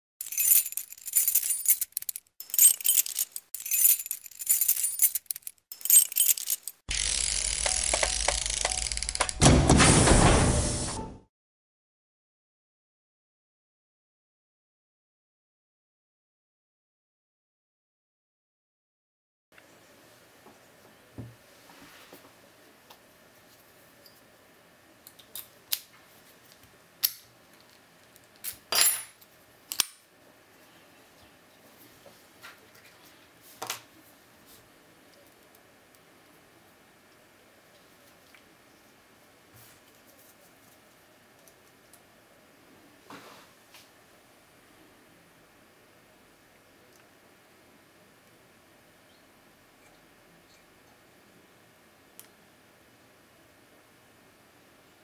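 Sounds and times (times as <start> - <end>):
high clicking and rattling: 0.2 - 9.4
padlock and key clinking: 0.2 - 9.4.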